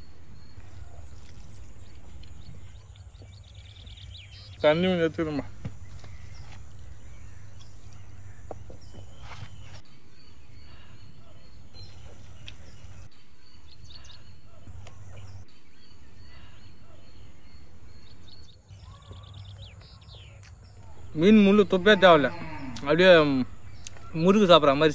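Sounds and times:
low hum: 0.0 - 2.8, 5.5 - 18.5
faint bird chirps: 0.0 - 24.9.

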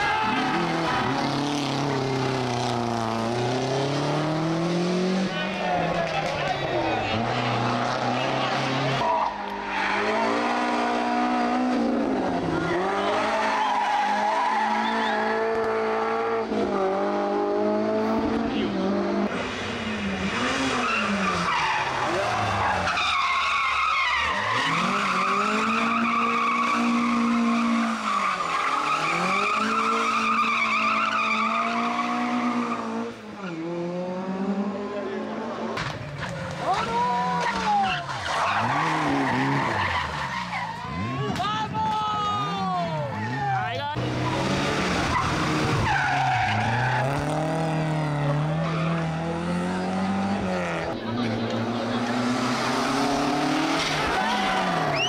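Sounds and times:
tyres squealing and skidding: 0.0 - 3.0, 5.2 - 16.2, 19.3 - 33.8, 35.8 - 55.0
car engine revving hard: 0.5 - 5.5, 9.9 - 22.6, 44.0 - 55.0.

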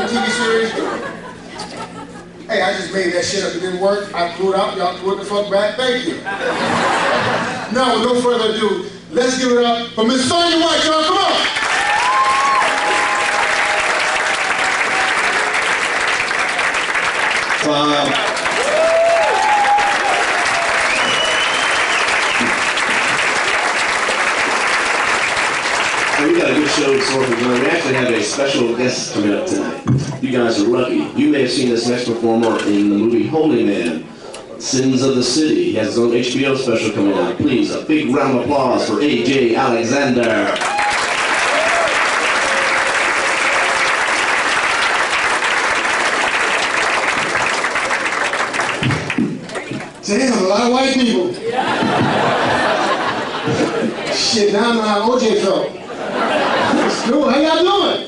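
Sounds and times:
audience applauding: 11.2 - 28.9, 40.4 - 50.0
high whistle: 20.8 - 22.6.

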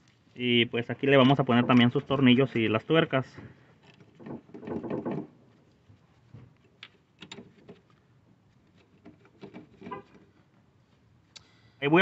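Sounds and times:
metallic clicks of nuts and bolts: 6.7 - 8.0.

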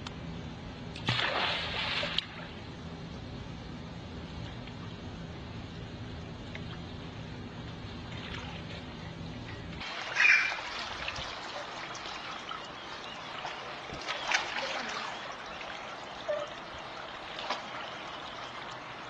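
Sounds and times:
low steady rumble: 0.0 - 19.0
pool water splashing: 1.0 - 2.7, 7.7 - 9.0, 9.8 - 19.0.

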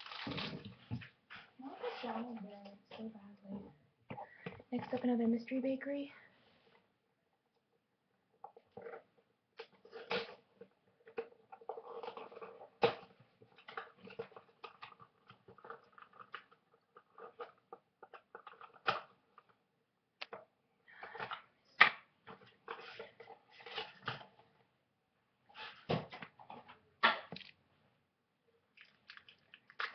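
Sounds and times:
packaging crinkling and rustling: 0.0 - 0.8.

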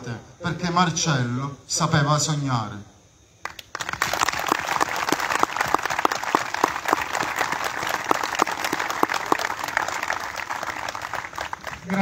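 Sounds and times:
crowd applauding: 3.4 - 12.0.

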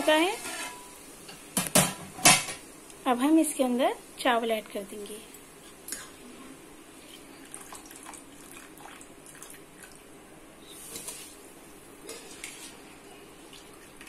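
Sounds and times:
water boiling in a pot: 6.5 - 14.0.

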